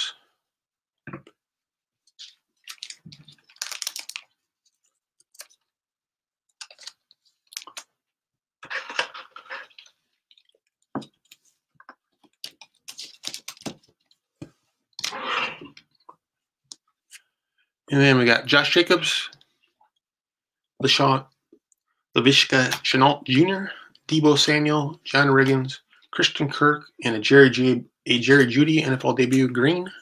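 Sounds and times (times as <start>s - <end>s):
plastic card sleeve crinkling: 2.2s - 5.7s, 6.6s - 7.9s, 12.2s - 14.1s.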